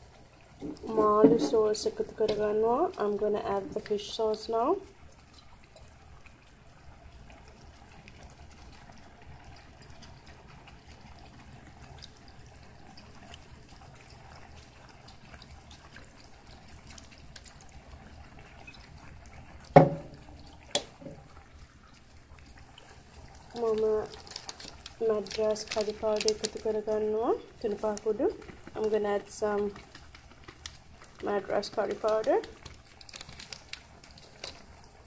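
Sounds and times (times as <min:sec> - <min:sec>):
liquid trickling into a pan: 0:00.0 - 0:35.0
sharp knocks: 0:19.8 - 0:20.2.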